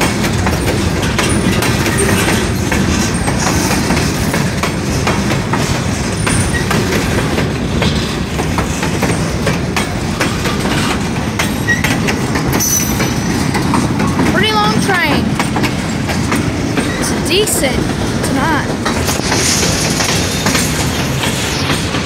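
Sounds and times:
steel wheels rumbling on rail: 0.0s - 22.0s
wheels clacking over rail joints: 0.0s - 22.0s
high squeal: 12.6s - 13.4s.

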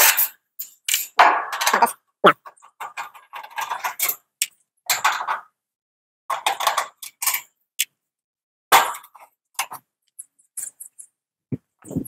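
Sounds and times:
sheet-metal panels rattling and clanking: 0.0s - 4.3s, 4.9s - 5.6s, 6.3s - 7.5s.

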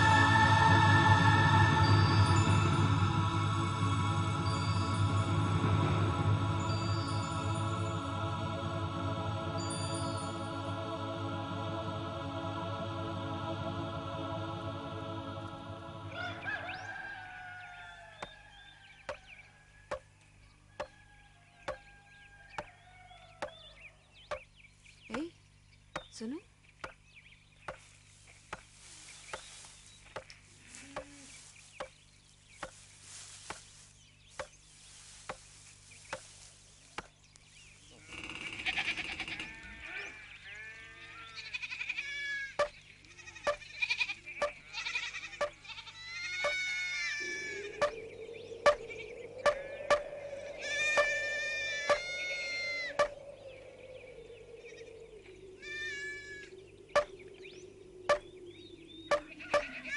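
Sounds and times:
background music held note: 0.0s - 17.2s
goats and sheep bleating: 30.5s - 31.5s, 37.9s - 48.0s, 49.4s - 53.2s, 55.6s - 57.1s, 59.1s - 59.9s
faint high chirps: 46.3s - 59.9s.

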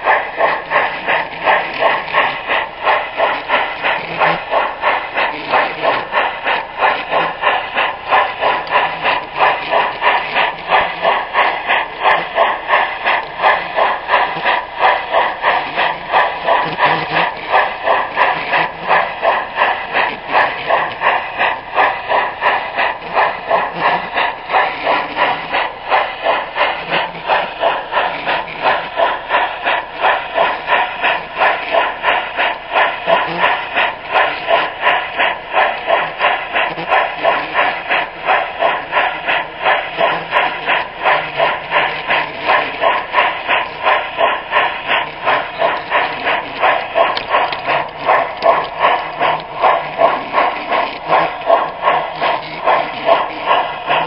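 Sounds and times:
model train rhythmic running beat: 0.0s - 54.0s.

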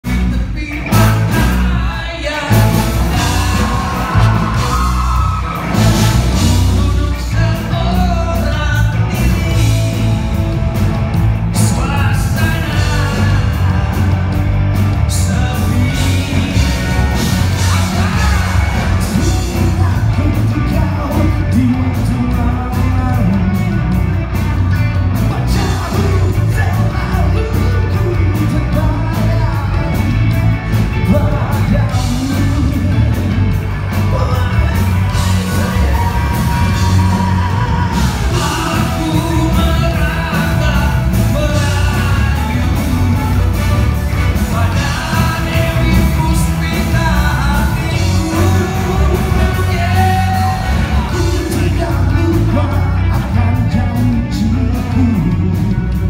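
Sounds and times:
bass guitar: 0.0s - 56.0s
electric guitar: 0.0s - 56.0s
man singing: 0.0s - 56.0s
person yelling: 3.1s - 6.1s.

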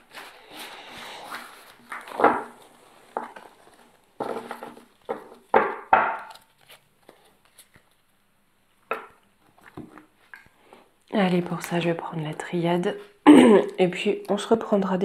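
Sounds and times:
cards being shuffled: 0.0s - 5.5s, 6.2s - 8.0s.

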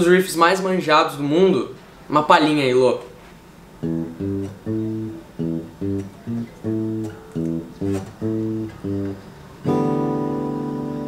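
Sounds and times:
acoustic guitar choppy chords: 3.8s - 11.0s.

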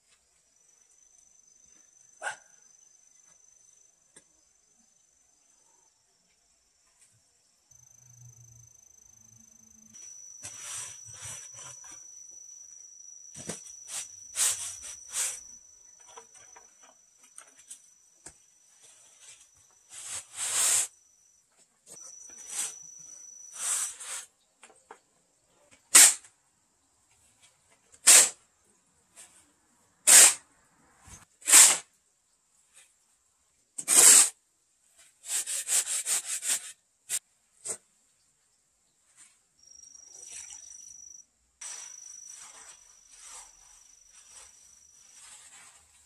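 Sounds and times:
shovel scraping concrete floor: 10.0s - 12.0s, 13.4s - 15.5s, 18.9s - 20.9s, 22.3s - 22.8s, 23.5s - 24.3s, 31.4s - 31.8s, 33.8s - 34.3s.

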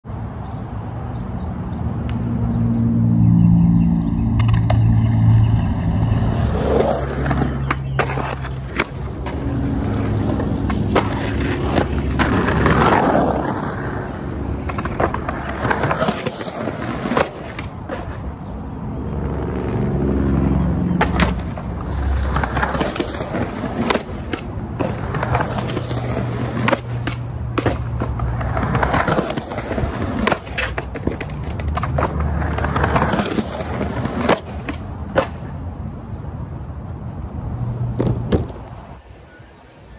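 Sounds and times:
skateboard pops and clacks: 4.4s - 5.0s, 6.6s - 13.6s, 21.0s - 35.6s, 37.9s - 38.8s
skateboard wheels rolling: 4.4s - 19.0s, 19.7s - 39.9s.

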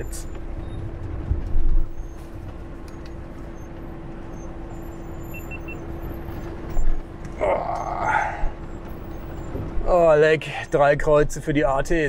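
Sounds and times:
van engine running at low revs: 0.0s - 12.0s
short high beeps: 4.4s - 6.9s.

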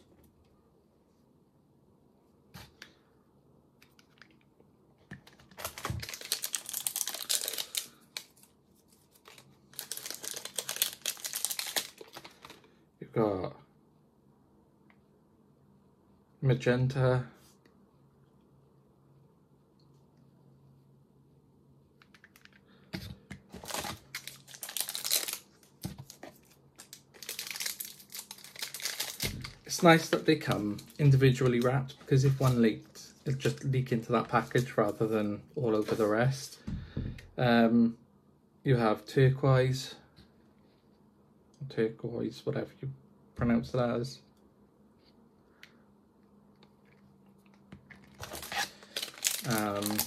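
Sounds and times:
plastic wrapping crinkling: 5.1s - 12.7s, 23.5s - 35.0s, 47.9s - 50.0s.

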